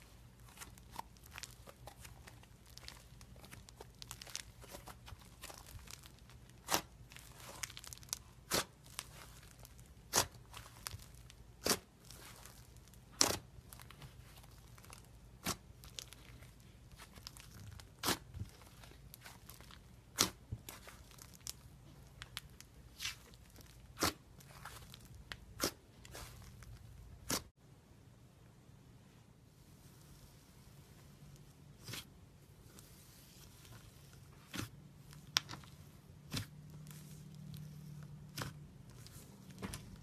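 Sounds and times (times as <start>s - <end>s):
slime popping and crackling: 0.4s - 27.5s.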